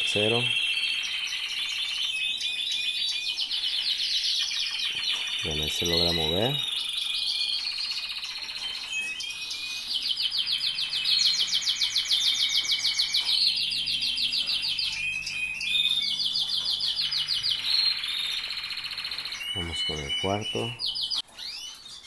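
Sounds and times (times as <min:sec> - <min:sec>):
canaries singing trills: 0:00.0 - 0:22.0.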